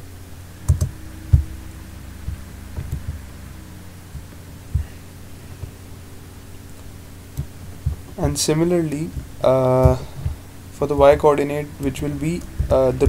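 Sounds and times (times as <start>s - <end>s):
low electrical hum: 0.0s - 13.0s
keystrokes and mouse clicks: 0.7s - 1.4s.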